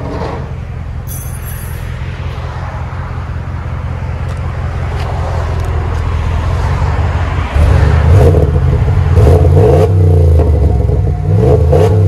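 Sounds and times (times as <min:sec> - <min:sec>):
engine idling and revving: 0:00.0 - 0:12.0.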